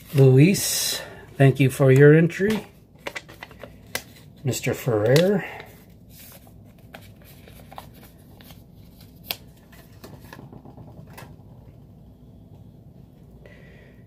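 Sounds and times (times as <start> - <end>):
paper rustling: 4.9 - 10.0.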